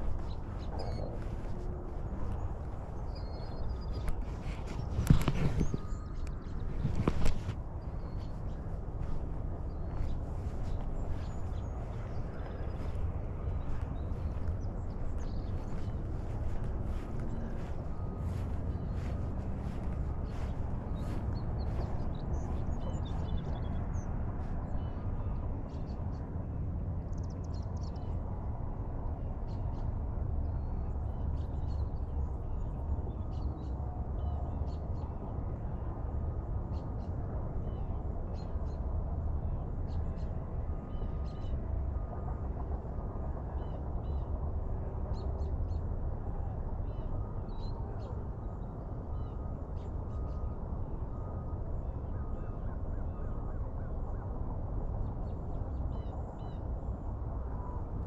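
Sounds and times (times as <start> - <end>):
low rumble: 0.0 - 24.9
birds chirping: 0.0 - 25.3.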